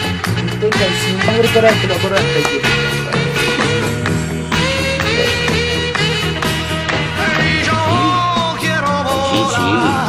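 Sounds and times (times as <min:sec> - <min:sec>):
song with steady beat and bass: 0:00.0 - 0:10.0
person singing: 0:07.0 - 0:10.0.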